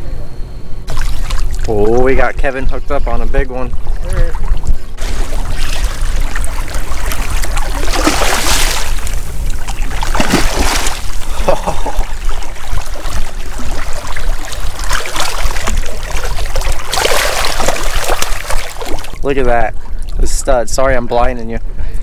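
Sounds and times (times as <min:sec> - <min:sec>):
steady low rumble: 0:00.0 - 0:17.0
fish thrashing and splashing water: 0:00.9 - 0:01.9, 0:03.8 - 0:19.2.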